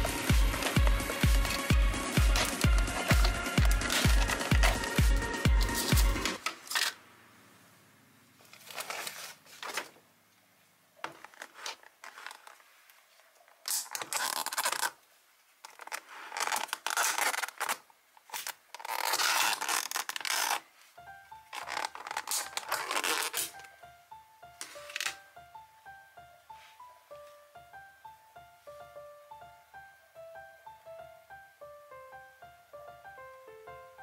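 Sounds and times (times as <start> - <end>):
plastic container crackling: 0.0 - 7.0, 13.6 - 15.0, 15.6 - 20.7, 21.5 - 23.7.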